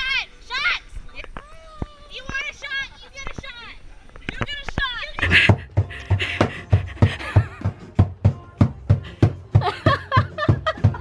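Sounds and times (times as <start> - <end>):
drum beaten with mallets: 5.2 - 11.0.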